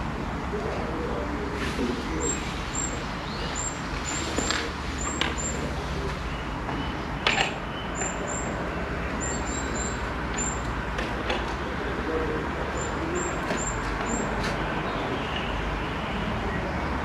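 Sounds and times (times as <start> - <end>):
outdoor background noise: 0.0 - 17.0
hardware clicks and knocks: 6.7 - 8.2, 10.3 - 11.6.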